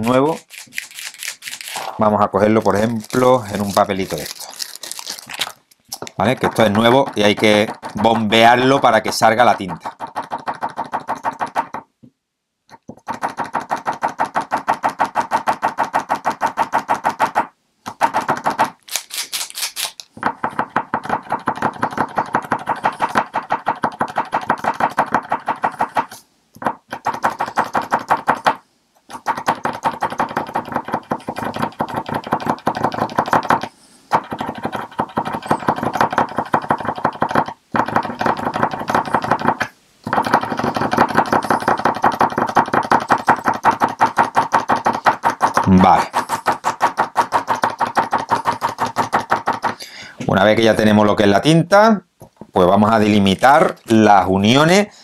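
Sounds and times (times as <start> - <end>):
paint marker rapid tapping: 6.0 - 11.9, 12.7 - 18.8, 20.2 - 49.8.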